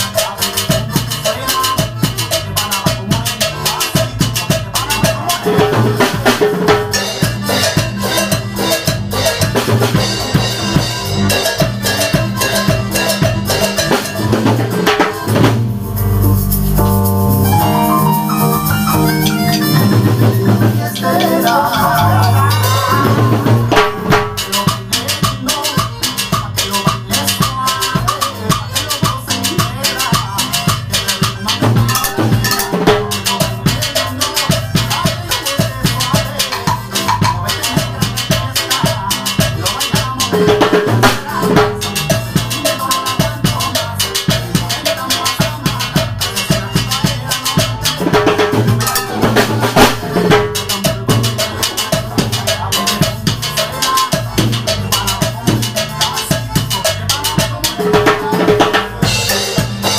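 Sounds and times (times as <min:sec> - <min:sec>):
drums cymbals and cowbell: 0:00.0 - 0:59.9
dance music backing track: 0:14.9 - 0:24.4.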